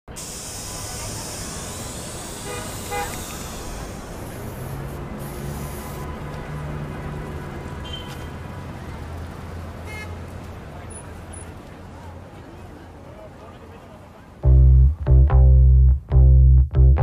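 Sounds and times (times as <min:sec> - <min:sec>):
spray paint can hissing: 0:00.1 - 0:06.1
low bass notes: 0:14.4 - 0:17.0.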